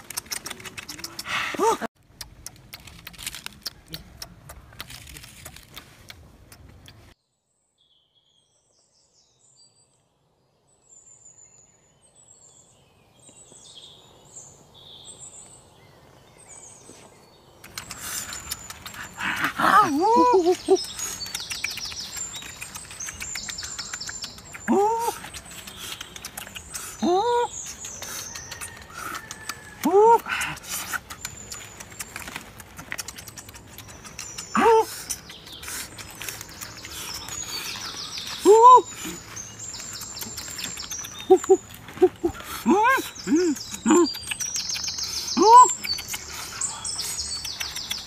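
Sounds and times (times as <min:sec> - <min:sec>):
birds chirping: 0:07.9 - 0:48.0
bird calls rising and falling: 0:16.6 - 0:48.0.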